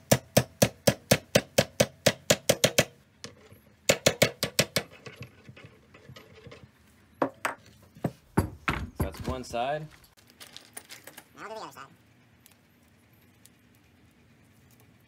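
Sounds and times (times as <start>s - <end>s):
hammer tapping metal bushing: 0.0s - 9.5s.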